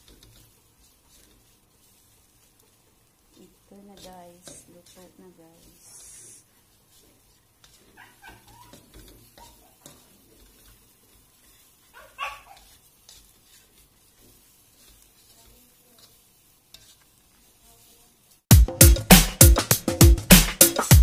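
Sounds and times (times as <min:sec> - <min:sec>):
dog barking: 0:08.0 - 0:08.8, 0:09.4 - 0:09.8, 0:11.9 - 0:12.7
dog yipping and whimpering: 0:08.0 - 0:09.8, 0:11.9 - 0:12.7.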